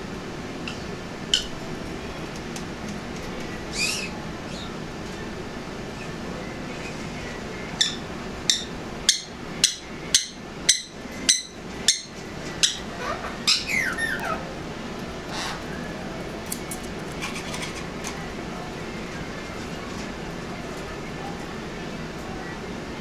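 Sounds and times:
parrot screeching: 3.7 - 4.8, 7.8 - 9.3, 10.7 - 14.5, 15.3 - 15.8.

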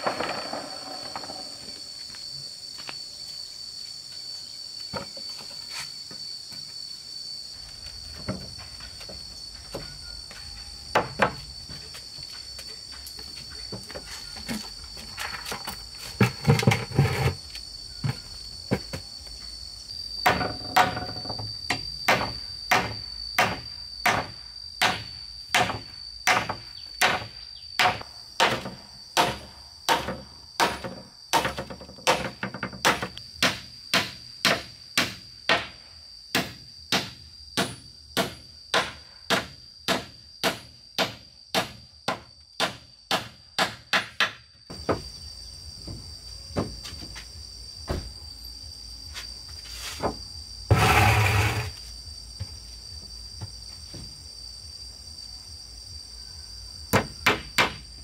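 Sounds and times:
high insect drone: 0.0 - 58.0
knocks of boards: 10.9 - 11.4, 20.2 - 35.8, 36.4 - 45.1, 56.9 - 57.8.

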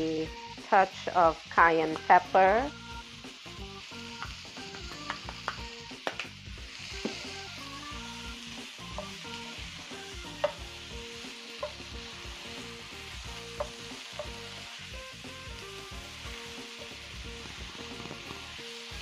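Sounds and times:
vegetables sizzling in a skillet: 0.0 - 19.0
wooden spoon clicking against pan: 10.4 - 10.6, 13.6 - 14.4.

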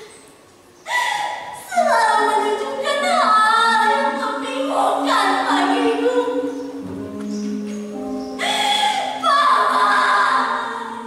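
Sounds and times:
woman singing unaccompanied: 1.6 - 6.8.

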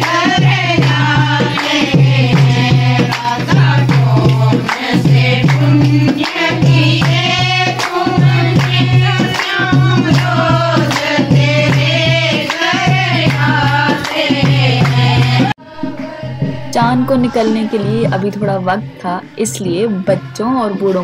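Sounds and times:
hand-clapping: 0.0 - 15.6
hand drum beat: 0.0 - 18.8
women singing folk song: 0.0 - 21.0.

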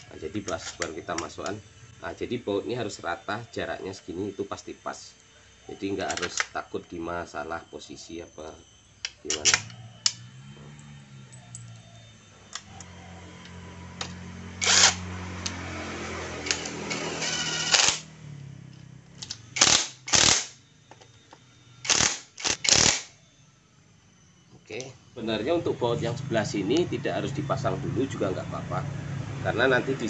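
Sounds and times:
sharp rasping bursts of a tool: 14.6 - 15.0, 19.6 - 20.6, 21.8 - 23.1.

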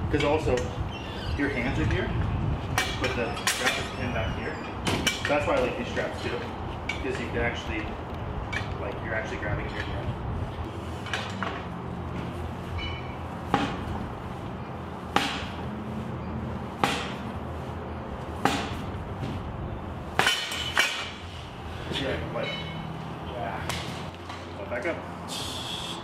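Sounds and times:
steel frame clanking: 2.7 - 10.2, 10.9 - 13.9, 20.1 - 23.0.

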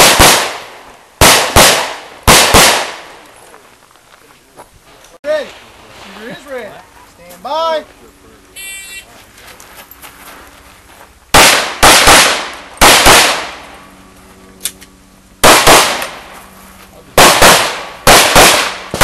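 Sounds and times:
handgun shots: 11.4 - 13.5, 17.2 - 19.0.

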